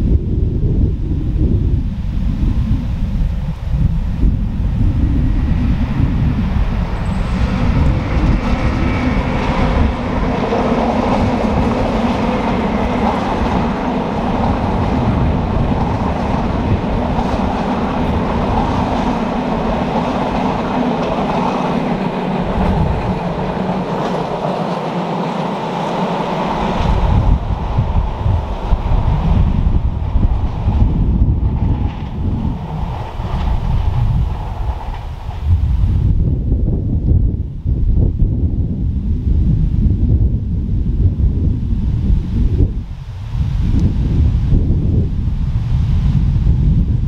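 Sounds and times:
passenger train passing at speed: 0:00.0 - 0:47.0
wheel-on-rail noise: 0:03.2 - 0:35.8.

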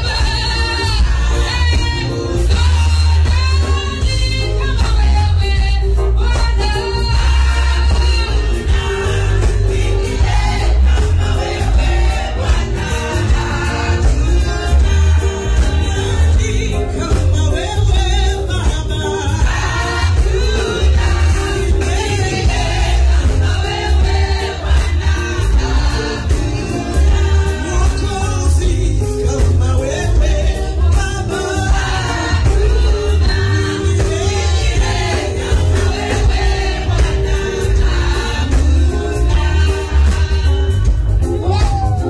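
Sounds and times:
woman singing into a microphone: 0:00.0 - 0:12.1
amplified backing music with bass: 0:00.0 - 0:42.0
women singing along: 0:00.0 - 0:42.0.

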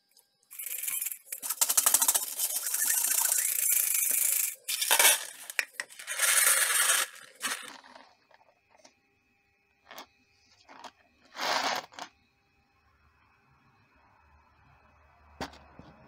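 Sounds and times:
nuts and bolts rattling in tray: 0:00.5 - 0:08.0.

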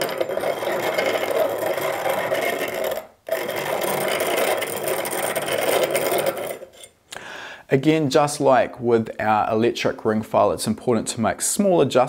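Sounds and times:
abrasive wheel grinding metal: 0:00.0 - 0:06.9.

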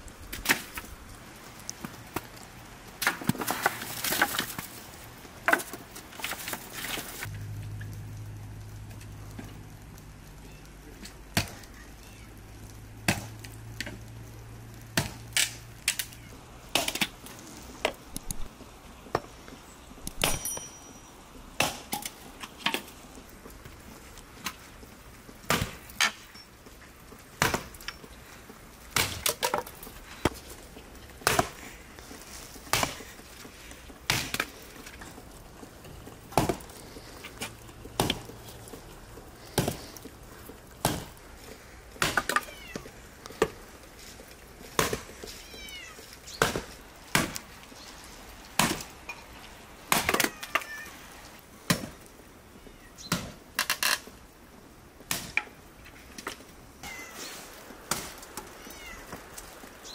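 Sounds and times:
hatchet chopping branches: 0:13.0 - 0:14.0, 0:14.9 - 0:17.2, 0:21.6 - 0:22.9, 0:27.4 - 0:28.0, 0:28.9 - 0:30.4, 0:31.2 - 0:31.7, 0:32.6 - 0:33.2, 0:34.0 - 0:35.0, 0:36.2 - 0:38.4, 0:39.4 - 0:40.1, 0:40.8 - 0:41.3, 0:42.0 - 0:42.5, 0:44.7 - 0:45.2, 0:46.3 - 0:47.6, 0:48.5 - 0:49.1, 0:49.9 - 0:50.4, 0:51.7 - 0:52.0, 0:55.1 - 0:55.6.

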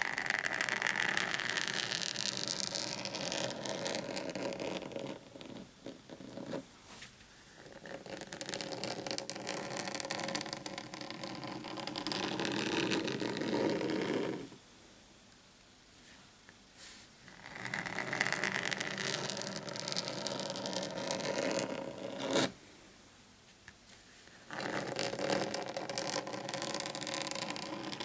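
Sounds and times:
fingernails scratching a mat: 0:00.0 - 0:06.6, 0:07.6 - 0:14.6, 0:17.3 - 0:22.6, 0:24.4 - 0:28.0.

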